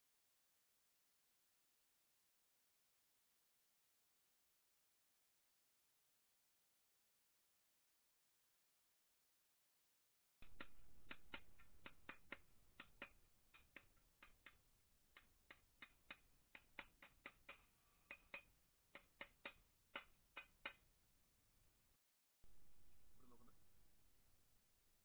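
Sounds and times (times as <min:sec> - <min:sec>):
mallet tapping metal: 0:10.4 - 0:14.6.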